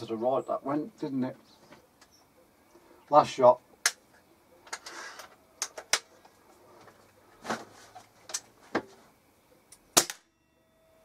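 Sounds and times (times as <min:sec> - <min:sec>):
air rifle shot: 0:10.0 - 0:10.3.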